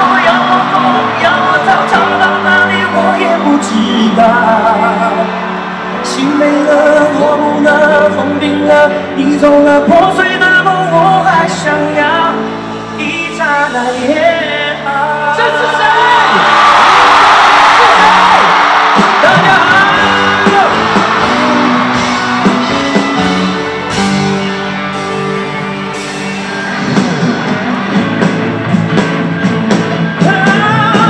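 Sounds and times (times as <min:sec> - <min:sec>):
man singing into microphone: 0:00.0 - 0:17.0, 0:17.8 - 0:21.6, 0:30.2 - 0:31.0
crowd cheering and yelling: 0:00.0 - 0:31.0
electric guitars: 0:00.0 - 0:31.0.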